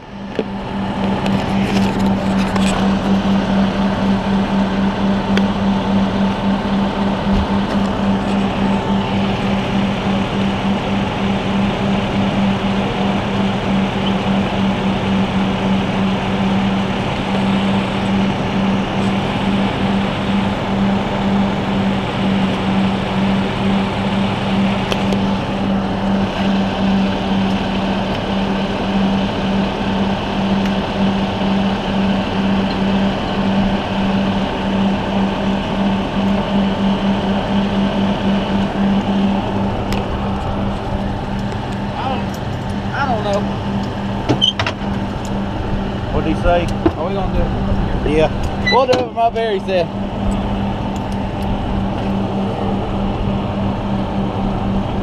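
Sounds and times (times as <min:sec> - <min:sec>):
truck engine running: 0:00.0 - 0:55.0.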